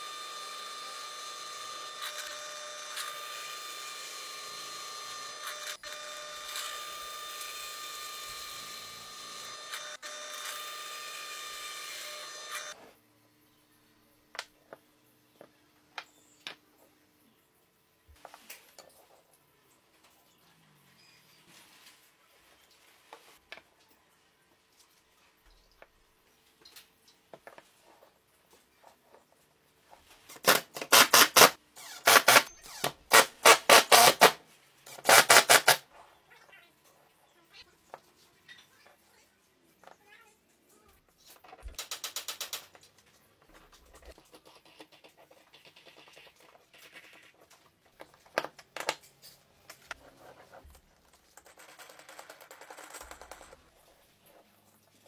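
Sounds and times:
drill press motor whining: 0:00.0 - 0:12.7
impact driver driving screws: 0:30.5 - 0:34.4, 0:35.0 - 0:35.8.

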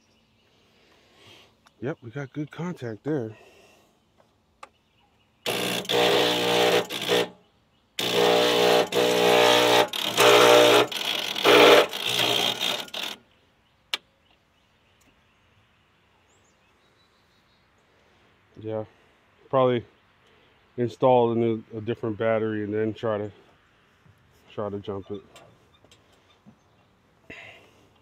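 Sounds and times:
starter cranking engine: 0:08.0 - 0:13.2.

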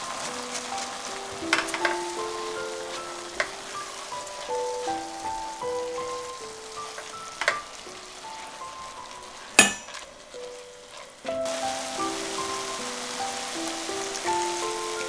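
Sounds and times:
food sizzling in a pan: 0:00.0 - 0:15.0
loud even hiss: 0:00.0 - 0:15.0
soft background music: 0:00.0 - 0:15.0
spatula scraping and knocking pan: 0:00.5 - 0:07.8, 0:09.4 - 0:11.1.

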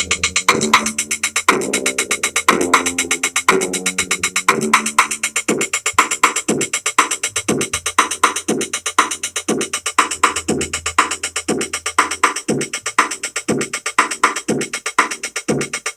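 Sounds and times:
fast hi-hats: 0:00.0 - 0:15.9
low bass note: 0:01.6 - 0:05.4.

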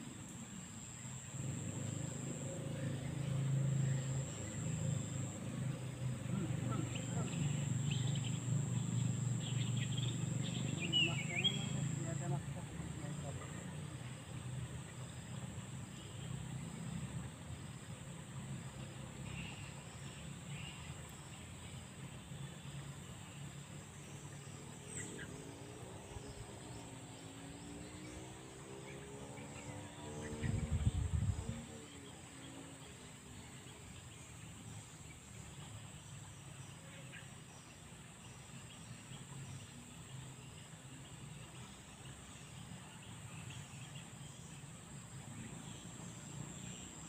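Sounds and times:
high-pitched insect drone: 0:00.0 - 0:13.6
faint pitched hum: 0:00.0 - 0:28.2
wind buffet on microphone: 0:30.4 - 0:31.6.

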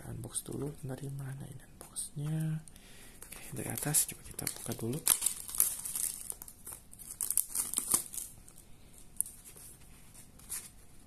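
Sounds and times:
plastic wrap crinkling: 0:03.2 - 0:10.8.

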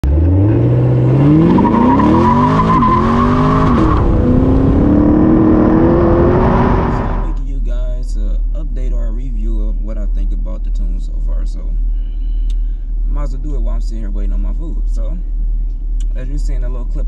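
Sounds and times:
car engine accelerating hard: 0:00.0 - 0:07.4
high whine: 0:00.0 - 0:07.4.

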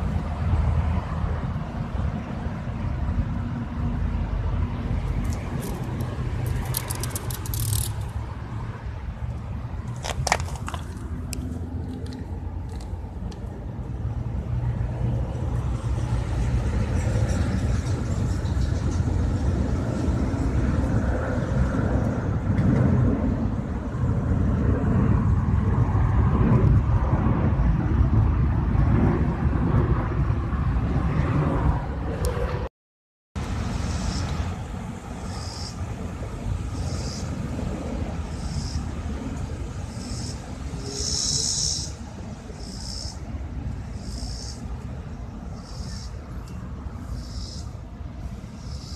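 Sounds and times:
low outdoor rumble: 0:00.0 - 0:32.7
sharp clicks: 0:05.2 - 0:08.1.

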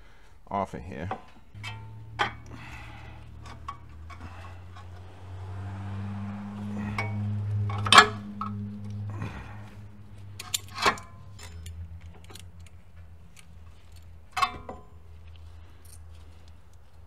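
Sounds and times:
low steady hum: 0:00.8 - 0:17.0
metallic clinks of hand tools: 0:10.4 - 0:14.7.

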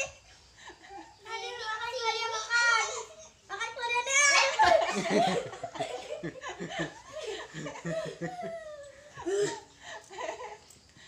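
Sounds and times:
woman and children laughing: 0:04.4 - 0:10.8.

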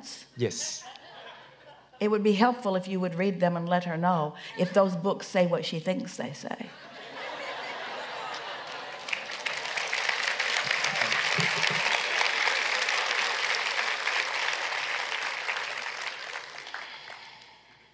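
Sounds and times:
audience applauding: 0:08.0 - 0:17.8.

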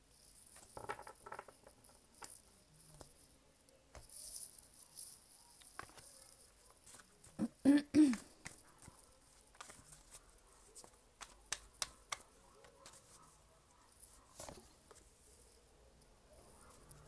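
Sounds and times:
cards clicking and tapping: 0:05.6 - 0:06.1, 0:08.0 - 0:10.2, 0:10.8 - 0:13.2.

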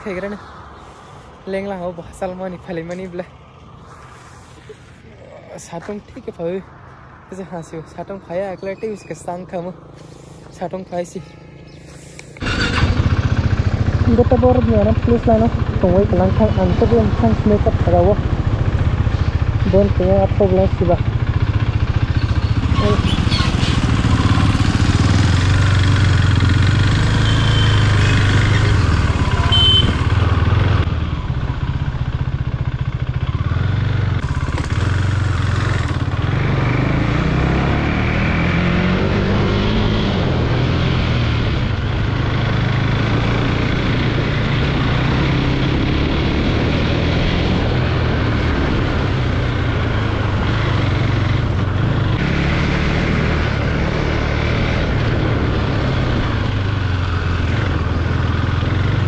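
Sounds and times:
wind and road noise: 0:00.0 - 0:59.0
motorcycle engine revving: 0:11.2 - 0:59.0.

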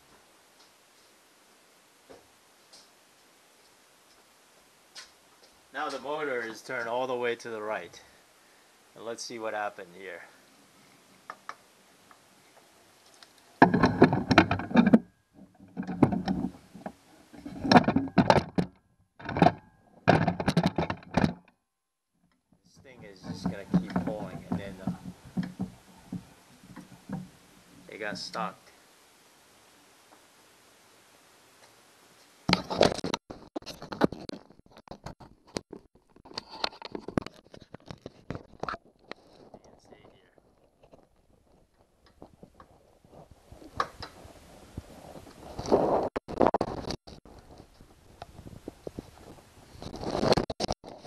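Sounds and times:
handling clicks and scraping: 0:13.0 - 0:21.5, 0:22.3 - 0:28.6, 0:32.5 - 0:51.0
metal parts clunking and knocking: 0:13.6 - 0:15.0, 0:19.2 - 0:21.4, 0:23.2 - 0:25.7.

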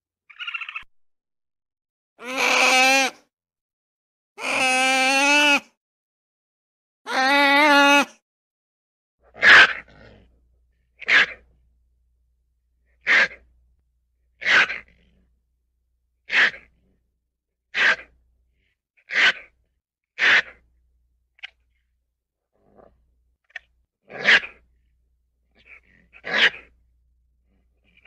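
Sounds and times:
ferret sneezing: 0:13.0 - 0:13.4, 0:16.3 - 0:16.7, 0:17.7 - 0:18.1, 0:20.2 - 0:20.6.

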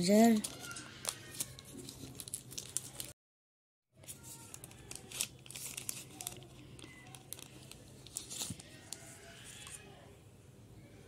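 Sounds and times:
packaging crackling and rustling: 0:00.4 - 0:03.2, 0:04.0 - 0:09.8.

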